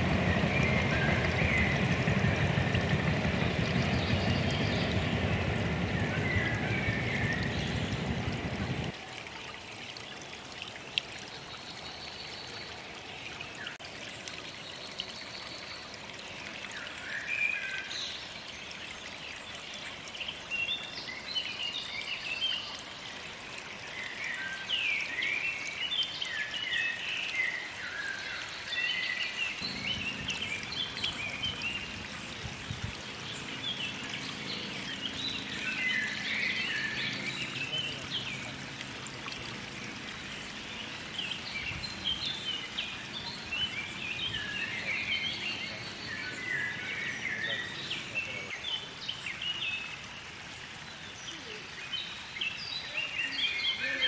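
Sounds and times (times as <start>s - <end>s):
low rushing noise: 0.0s - 8.9s, 29.6s - 38.8s
songbirds chirping and trilling: 0.0s - 9.0s, 23.8s - 54.0s.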